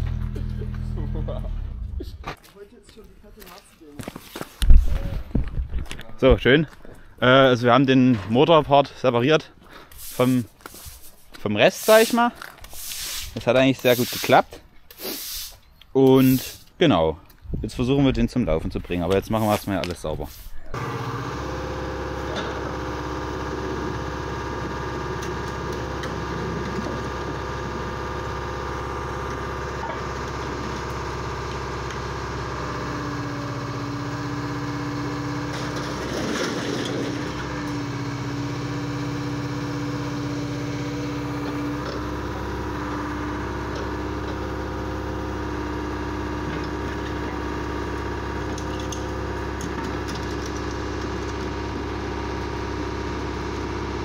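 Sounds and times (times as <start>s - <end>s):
excavator diesel engine running: 0.0s - 2.2s, 20.7s - 54.0s.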